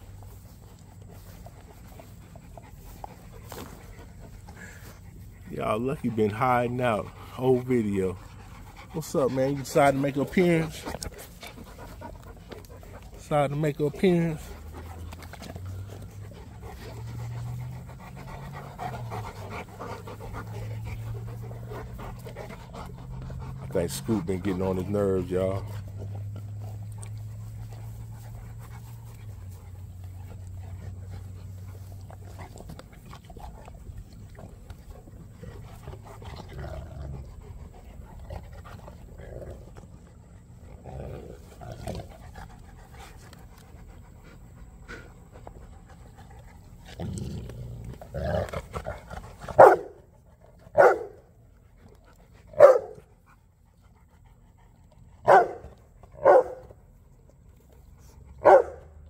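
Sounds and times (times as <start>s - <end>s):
dogs scuffling on grass: 0.0s - 40.3s
dog barking: 49.6s - 49.9s, 50.8s - 51.2s, 52.6s - 53.0s, 55.2s - 55.6s, 56.2s - 56.6s, 58.4s - 58.9s.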